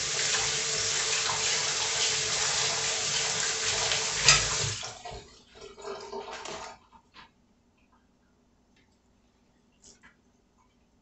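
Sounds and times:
faucet water running: 0.0s - 6.8s.

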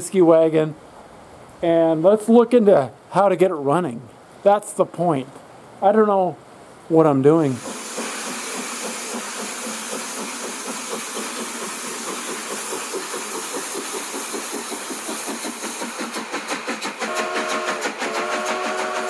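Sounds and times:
steady steam hiss: 0.0s - 19.0s
steam engine chuffing: 7.5s - 19.0s
multi-tone steam whistle: 17.0s - 19.0s.

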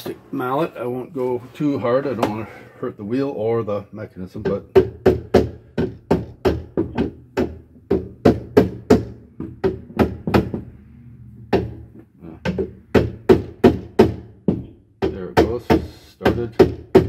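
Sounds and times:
plastic mallet tapping: 4.4s - 10.6s, 11.5s - 17.0s.

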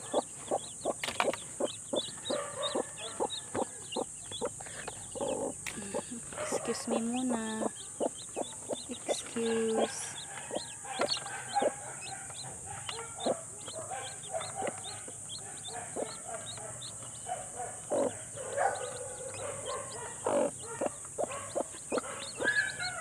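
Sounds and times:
chicks peeping: 0.0s - 23.0s
hen clucking: 0.0s - 23.0s
taps and rustling in nest box: 0.9s - 2.4s.

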